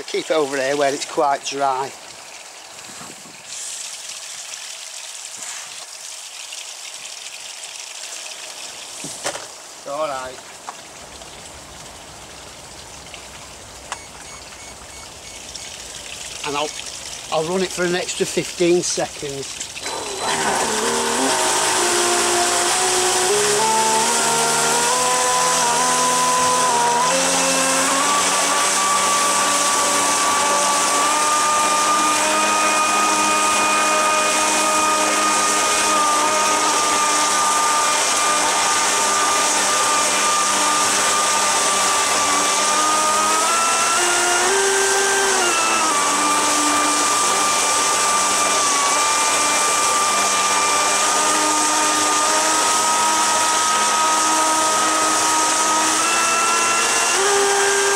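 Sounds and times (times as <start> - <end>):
churning water rushing: 0.0 - 57.9
electric motor whine: 19.7 - 57.9.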